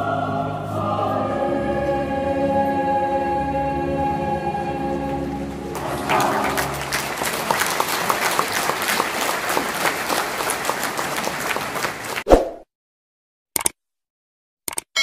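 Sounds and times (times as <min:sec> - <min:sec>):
choir singing a chord: 0:00.0 - 0:07.5
crowd applauding: 0:05.1 - 0:12.3.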